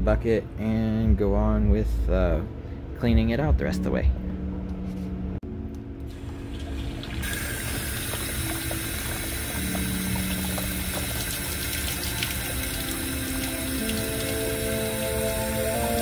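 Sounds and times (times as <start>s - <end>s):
water pouring into bucket: 6.1s - 16.0s.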